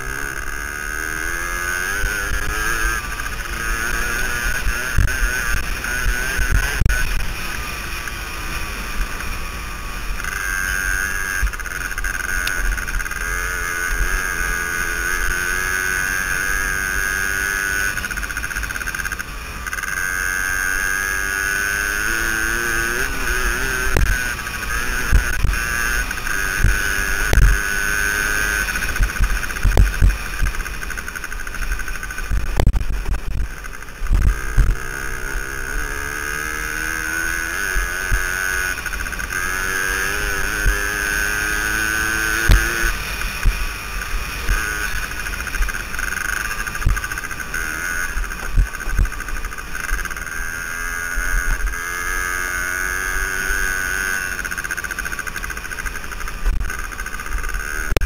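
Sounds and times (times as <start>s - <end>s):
two-stroke dirt bike engine revving: 0.0s - 58.0s.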